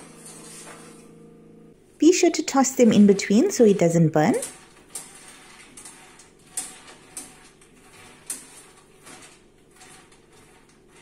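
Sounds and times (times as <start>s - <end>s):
spoon scraping metal tray: 0.0s - 1.1s, 2.1s - 11.0s.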